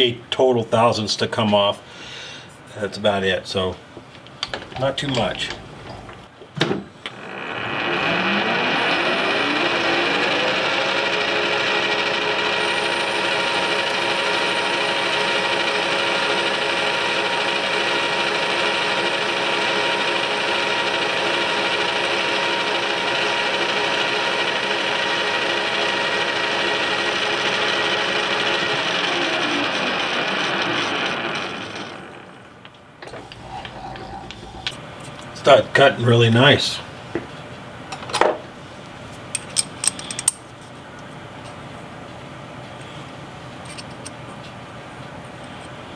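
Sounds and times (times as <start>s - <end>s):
metal lathe spindle running: 7.1s - 34.8s.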